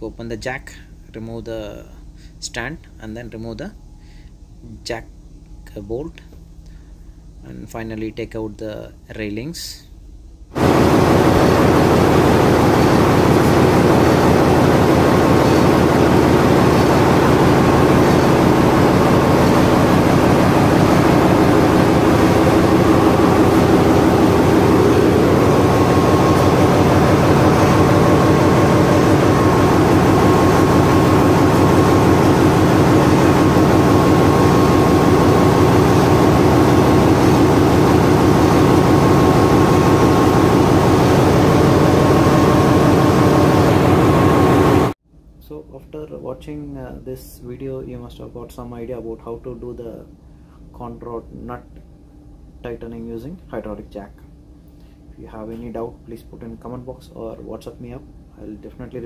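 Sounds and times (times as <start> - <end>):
faint high whine: 0.0 - 48.0
diesel engine room machinery: 10.6 - 45.0.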